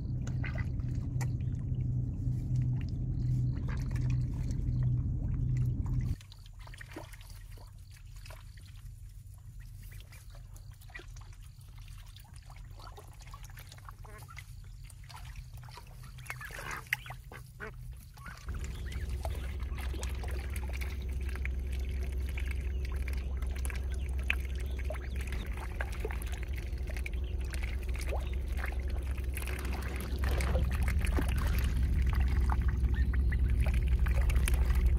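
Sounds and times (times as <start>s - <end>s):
low rumble: 0.0s - 34.9s
ducks quacking: 13.8s - 34.8s.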